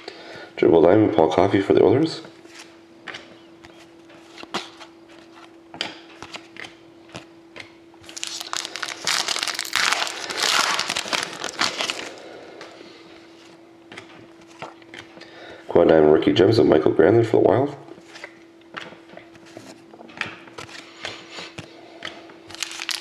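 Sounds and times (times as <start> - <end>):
faint steady hum: 0.0 - 23.0
foil wrapper crinkling: 8.0 - 12.3, 22.5 - 23.0.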